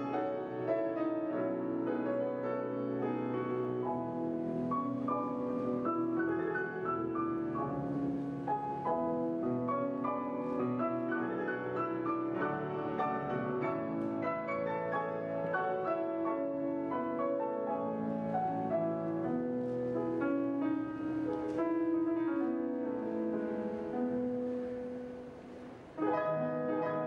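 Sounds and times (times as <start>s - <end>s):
solo piano piece: 0.0s - 27.0s.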